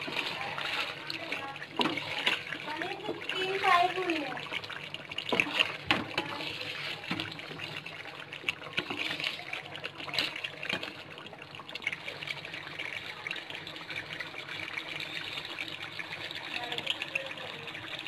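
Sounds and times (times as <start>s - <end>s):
sauce sizzling and bubbling in pot: 0.0s - 18.0s.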